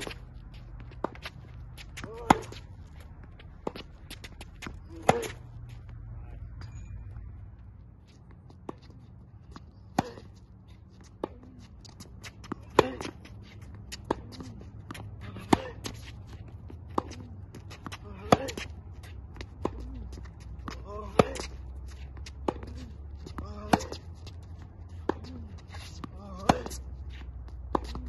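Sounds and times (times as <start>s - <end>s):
distant ball hits and bounces: 0.0s - 5.9s, 19.4s - 28.0s
racket striking tennis ball: 0.9s - 2.7s, 3.5s - 5.4s, 9.9s - 10.4s, 11.0s - 18.8s, 19.4s - 21.6s, 22.2s - 24.1s, 25.0s - 26.9s, 27.7s - 28.0s.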